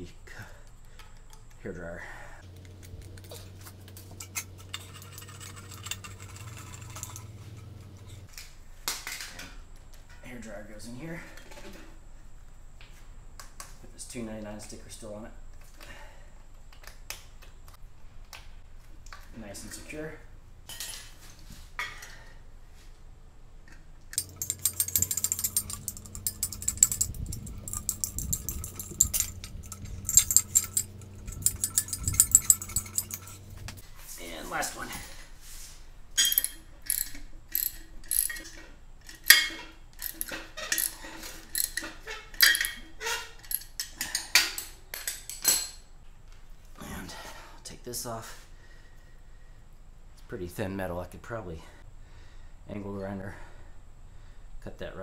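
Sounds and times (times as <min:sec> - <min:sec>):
steady low hum: 0:00.0 - 0:08.9, 0:09.5 - 0:39.3
metal clinks and rattles: 0:02.5 - 0:08.3, 0:24.1 - 0:33.8, 0:36.1 - 0:45.9
metallic clicks and taps: 0:24.1 - 0:33.8.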